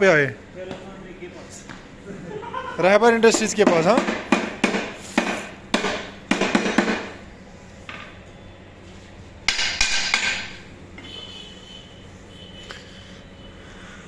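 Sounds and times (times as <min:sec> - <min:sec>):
hammer striking metal: 0:03.3 - 0:07.1, 0:09.5 - 0:10.6.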